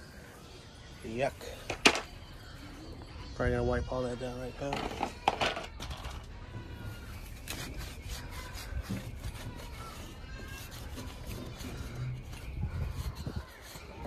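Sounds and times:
towel rubbing on metal frame: 0:06.9 - 0:14.0.

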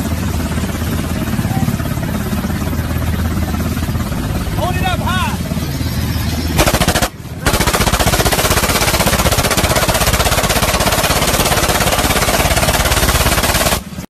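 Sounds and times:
machine gun firing bursts: 0:06.6 - 0:14.0.

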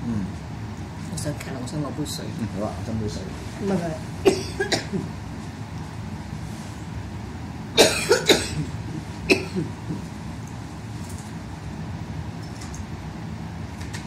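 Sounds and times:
woman coughing: 0:04.2 - 0:05.1, 0:07.8 - 0:09.8.

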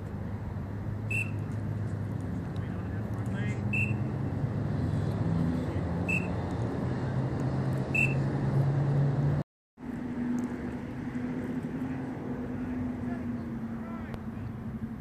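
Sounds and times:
short high chirps: 0:01.1 - 0:01.5, 0:06.1 - 0:06.3, 0:07.9 - 0:08.2.

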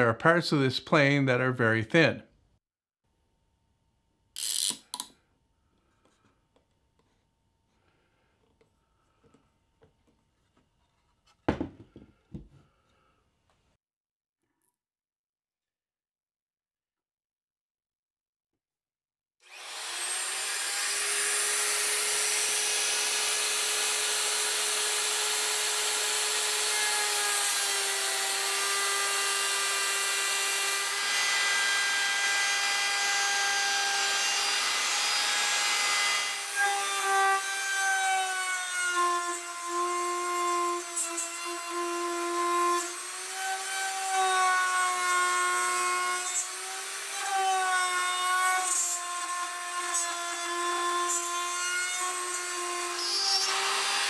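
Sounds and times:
router whining milling metal: 0:19.4 - 0:38.8, 0:46.2 - 0:54.0.

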